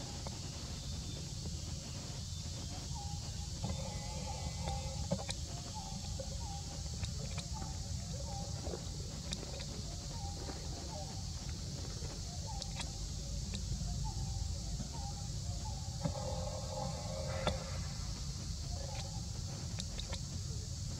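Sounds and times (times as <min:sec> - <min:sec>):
steady high hiss: 0:00.0 - 0:20.9
short chirping calls: 0:09.3 - 0:20.2.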